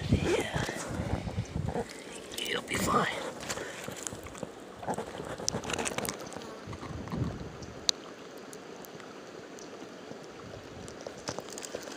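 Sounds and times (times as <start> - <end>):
mountain creek rushing: 0.0 - 11.9.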